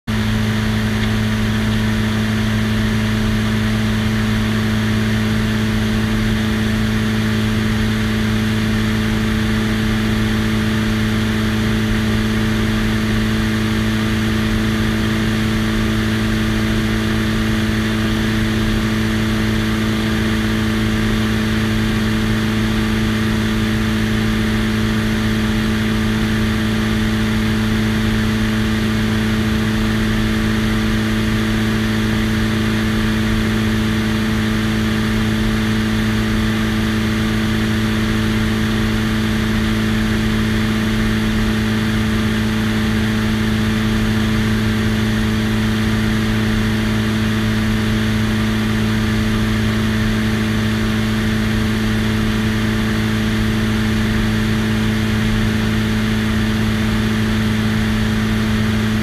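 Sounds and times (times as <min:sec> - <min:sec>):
propeller plane engine droning: 0:00.1 - 0:59.0.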